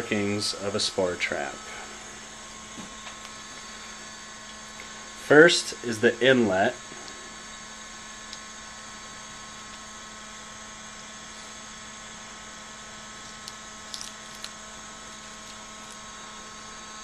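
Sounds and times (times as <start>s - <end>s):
air pump humming: 0.0s - 17.0s.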